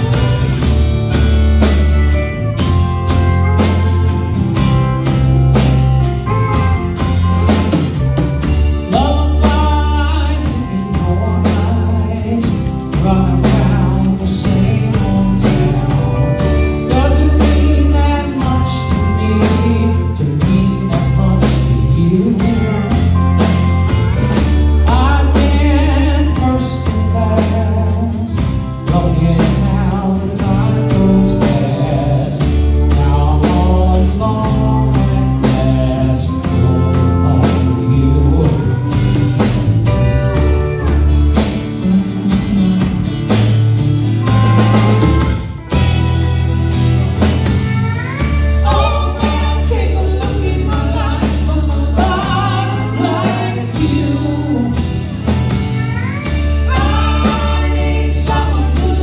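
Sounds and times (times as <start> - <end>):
live band playing a song: 0.0 - 59.0
pedal steel guitar: 0.0 - 59.0
person singing: 7.4 - 43.5, 47.2 - 59.0
drum beat: 36.5 - 59.0.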